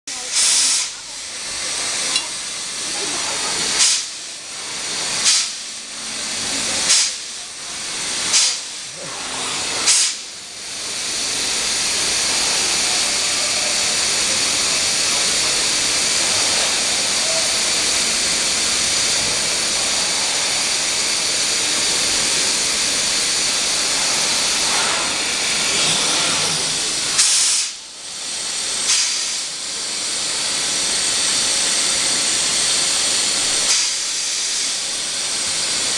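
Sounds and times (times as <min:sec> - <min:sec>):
cnc router hiss: 0:00.1 - 0:35.9.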